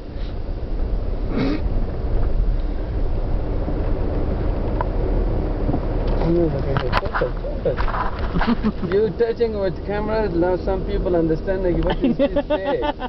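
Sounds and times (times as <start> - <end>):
car interior rumble: 0.0 - 13.0.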